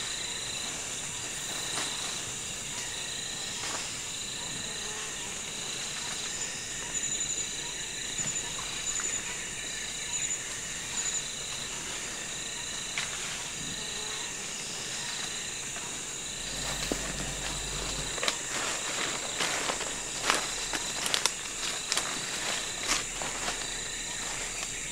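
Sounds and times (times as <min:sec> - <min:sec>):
insects trilling: 0:00.0 - 0:24.9
dry leaves rustling: 0:16.2 - 0:24.9.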